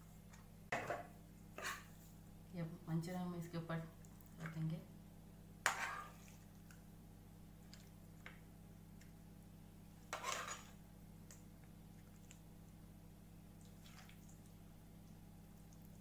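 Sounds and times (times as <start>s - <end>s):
faint steady hum: 0.0s - 16.0s
spoon scraping a plate: 1.6s - 1.9s, 5.7s - 6.3s, 10.1s - 10.8s.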